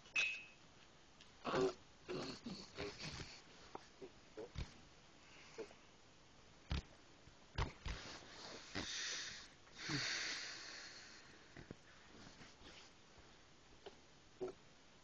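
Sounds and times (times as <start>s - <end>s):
close sniffing and snuffling: 2.2s - 5.8s, 7.7s - 13.0s.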